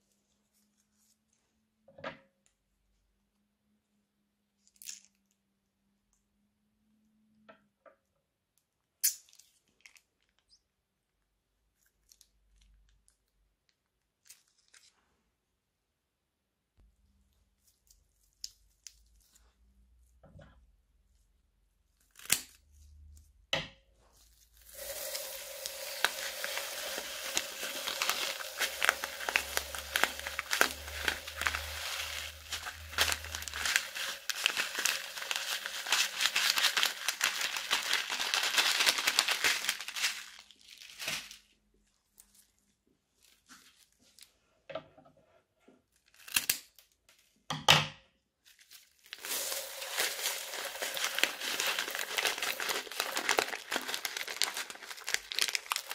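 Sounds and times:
plastic bag crinkling: 24.3s - 41.5s, 48.5s - 55.9s
scissors snipping plastic bag: 25.1s - 41.3s, 49.1s - 55.9s.

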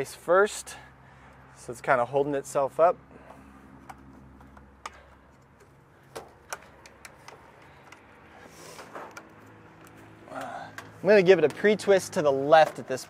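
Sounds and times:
clicks and taps of fitting: 3.8s - 8.1s.

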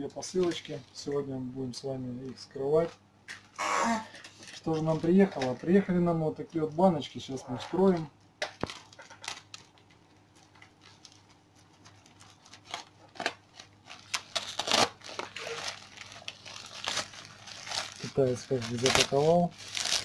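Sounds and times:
plastic bag crinkling: 8.6s - 20.0s.

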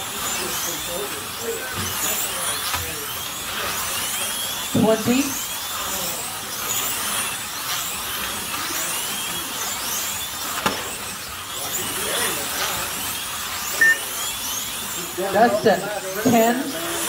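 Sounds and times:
slot car electric motors whining: 0.0s - 17.0s
short beep: 13.8s - 14.1s.

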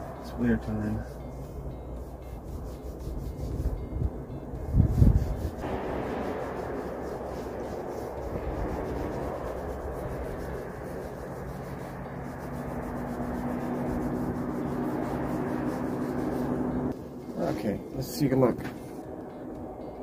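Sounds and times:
oil rubbed into wooden stick: 0.9s - 4.0s, 4.7s - 16.9s.

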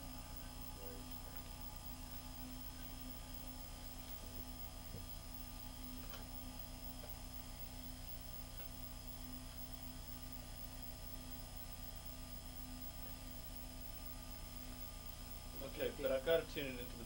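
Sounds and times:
electrical mains hum: 0.0s - 17.0s
high whine tones: 0.0s - 17.0s
tape hiss: 0.0s - 17.0s
faint ticks: 0.2s - 15.7s.

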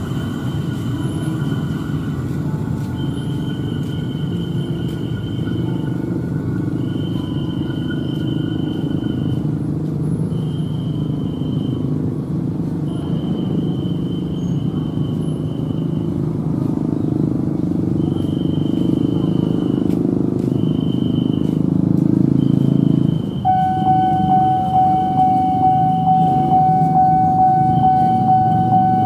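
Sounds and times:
electric train rumble: 0.0s - 29.0s
thin high tone: 23.4s - 29.0s.

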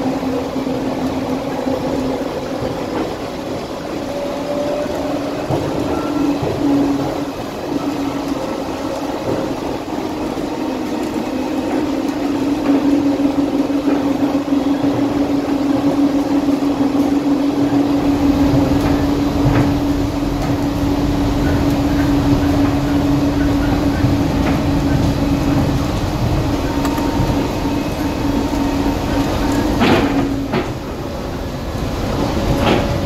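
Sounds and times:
rubber tyres rumbling: 0.0s - 33.0s
people mover whine: 17.0s - 33.0s.

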